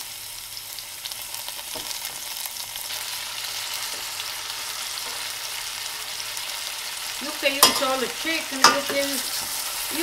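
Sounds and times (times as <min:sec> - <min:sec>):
chicken and onions sizzling in oil: 0:00.0 - 0:10.0
wooden spatula knocking pan: 0:08.6 - 0:09.1.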